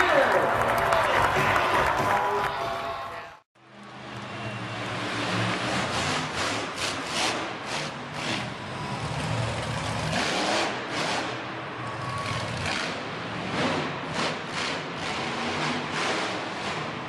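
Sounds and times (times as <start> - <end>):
monster truck engine revving: 3.8 - 17.0.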